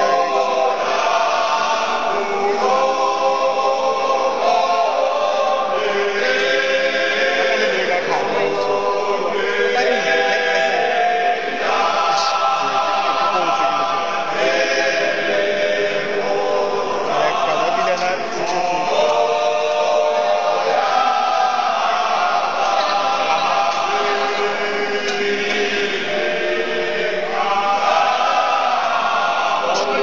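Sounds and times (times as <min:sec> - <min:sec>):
male choir singing in harmony: 0:00.0 - 0:30.0.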